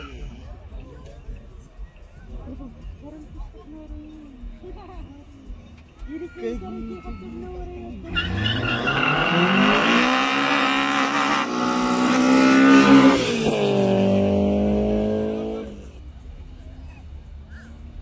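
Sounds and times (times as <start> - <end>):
race car engines at full throttle: 7.5 - 18.0.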